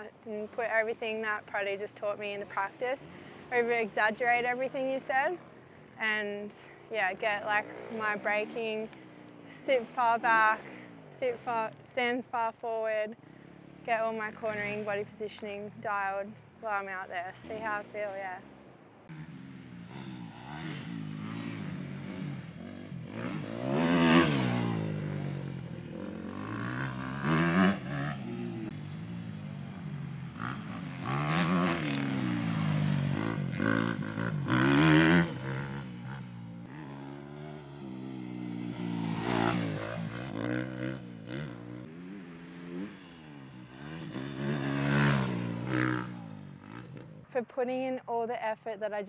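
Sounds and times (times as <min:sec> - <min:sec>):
dirt bike engine revving: 0:17.2 - 0:47.3.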